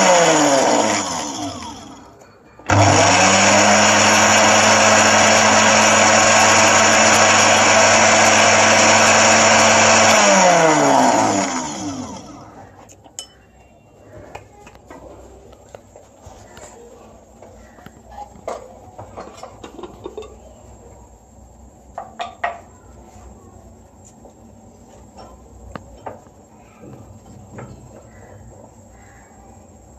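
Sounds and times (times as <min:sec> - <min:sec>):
electric spice grinder grinding: 0:00.0 - 0:12.6.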